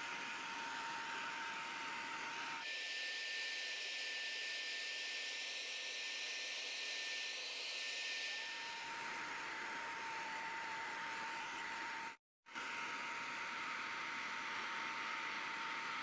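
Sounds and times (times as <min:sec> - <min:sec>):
electric spray gun hissing and whining: 0:00.0 - 0:16.0.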